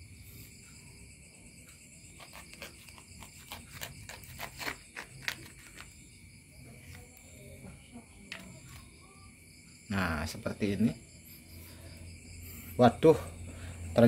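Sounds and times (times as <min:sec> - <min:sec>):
crickets chirring: 0:00.0 - 0:14.0
knife scoring avocado skin: 0:02.1 - 0:06.0.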